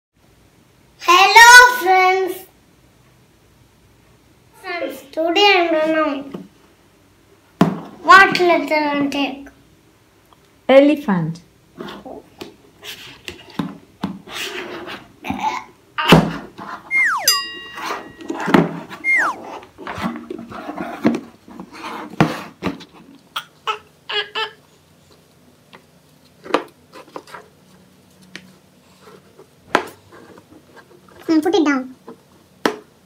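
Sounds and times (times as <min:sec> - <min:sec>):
child squealing: 0:16.9 - 0:17.5, 0:19.0 - 0:19.4.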